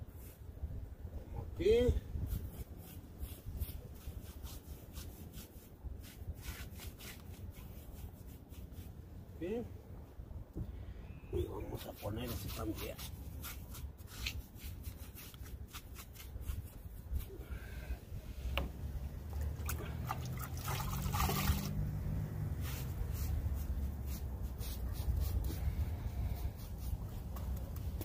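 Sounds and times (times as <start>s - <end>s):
sponge rubbing on wall: 2.2s - 9.0s, 11.6s - 17.4s, 22.5s - 27.4s
liquid splashing and dripping: 19.3s - 21.9s
sponge squeezed in bucket: 19.4s - 21.8s.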